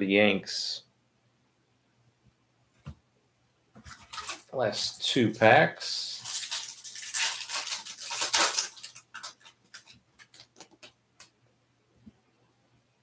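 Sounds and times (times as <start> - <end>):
foil pack tearing and crinkling: 3.9 - 4.5, 6.1 - 10.9.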